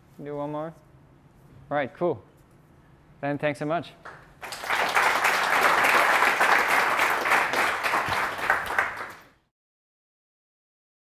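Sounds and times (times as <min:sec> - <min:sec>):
audience applauding: 0:04.1 - 0:09.4.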